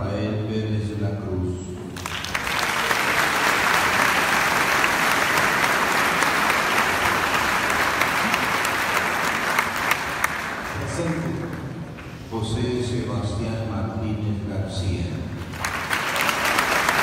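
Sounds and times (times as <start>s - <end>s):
congregation applauding: 1.9s - 12.2s, 15.4s - 17.0s.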